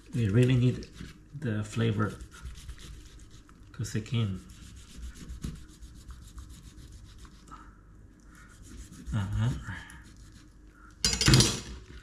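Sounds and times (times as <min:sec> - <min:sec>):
knife sawing through fish skin: 0:00.0 - 0:07.5, 0:08.5 - 0:10.6.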